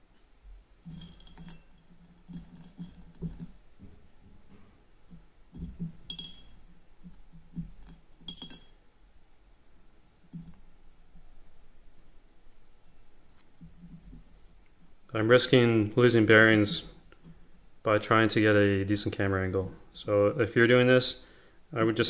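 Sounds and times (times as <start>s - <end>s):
steel ball bearings clinking: 0.8s - 3.6s, 5.0s - 8.8s, 10.3s - 10.9s.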